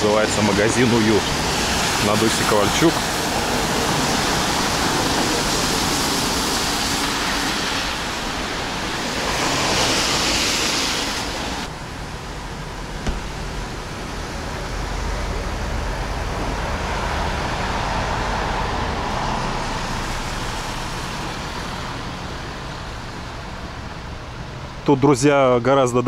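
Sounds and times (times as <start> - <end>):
car tyres hissing on wet road: 0.0 - 11.9, 12.8 - 24.6.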